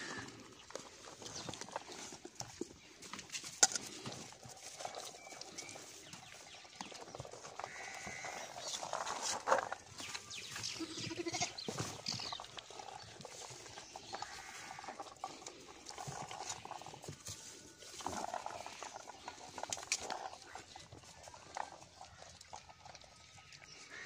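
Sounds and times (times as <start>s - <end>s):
goats munching: 0.0s - 24.0s
goats bleating: 10.6s - 11.7s.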